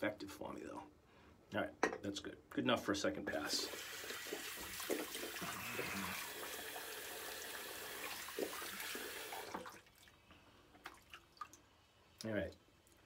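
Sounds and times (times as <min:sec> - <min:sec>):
tap running into a sink: 0:04.1 - 0:06.0.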